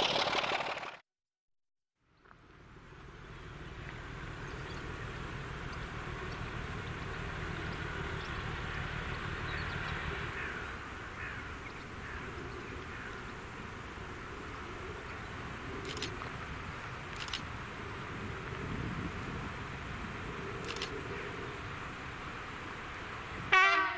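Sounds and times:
distant diesel locomotive rumble: 0:02.0 - 0:23.9
crows calling: 0:06.9 - 0:13.4.

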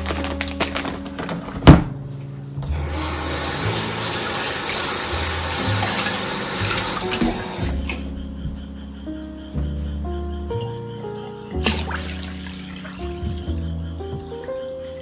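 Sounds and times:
plastic bags rustling: 0:00.0 - 0:01.8.

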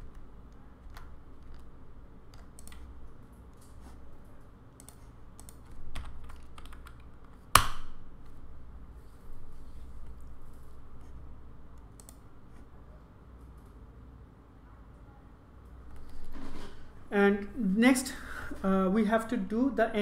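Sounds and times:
keyboard keystrokes: 0:02.3 - 0:02.9, 0:04.8 - 0:07.8.

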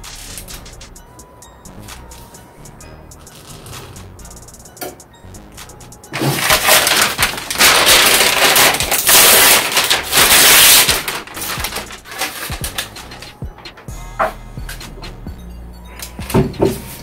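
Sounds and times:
paper crinkling and rustling: 0:06.1 - 0:13.4.

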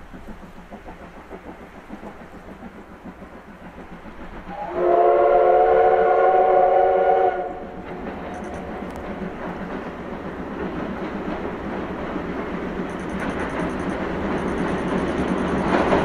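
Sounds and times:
approaching train running: 0:00.0 - 0:16.0
steam whistle blast: 0:04.5 - 0:07.6.

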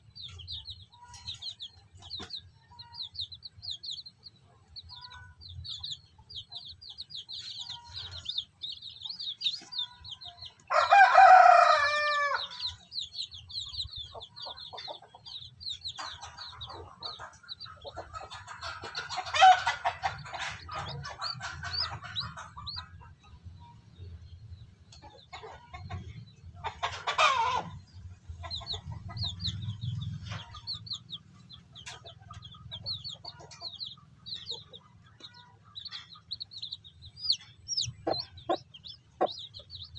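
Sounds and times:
chicken calls: 0:00.0 - 0:23.8, 0:24.9 - 0:39.9
chicks peeping: 0:00.0 - 0:39.9
rooster crowing: 0:10.7 - 0:12.7.

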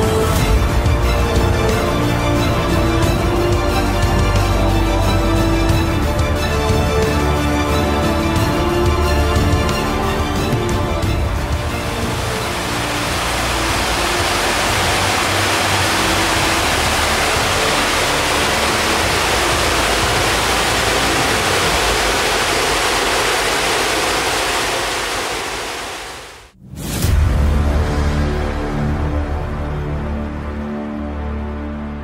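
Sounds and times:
high-pressure water jets rushing: 0:07.8 - 0:26.5.

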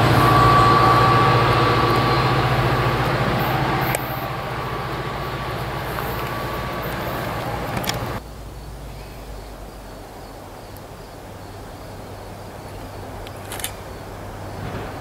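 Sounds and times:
low hum: 0:00.0 - 0:10.6
insects chirping: 0:00.0 - 0:15.0
passing train: 0:00.0 - 0:15.0.

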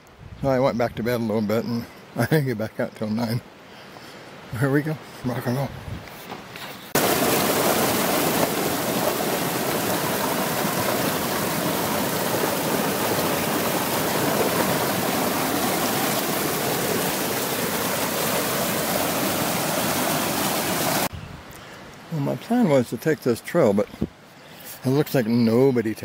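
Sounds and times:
stream rushing over rocks: 0:06.9 - 0:21.1.

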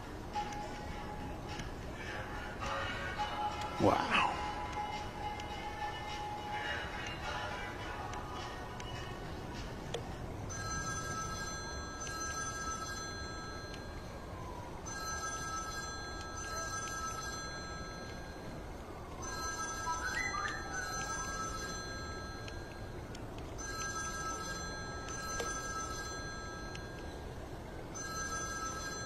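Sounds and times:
low background noise: 0:00.0 - 0:29.0
telephone ringing: 0:10.5 - 0:14.1, 0:14.8 - 0:18.6, 0:19.2 - 0:29.0.

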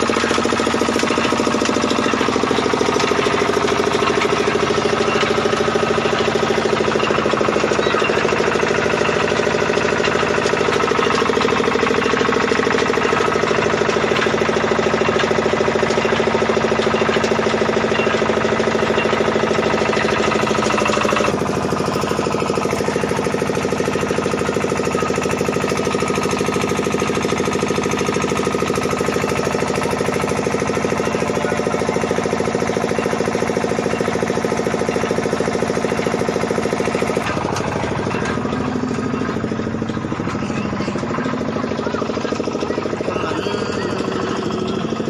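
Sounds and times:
engine running with fast beat: 0:00.0 - 0:45.0.

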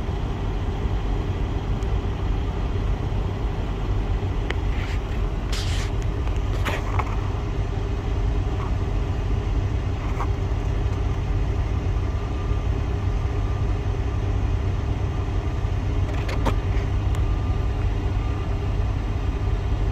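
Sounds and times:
diesel engine idling: 0:00.0 - 0:19.9.

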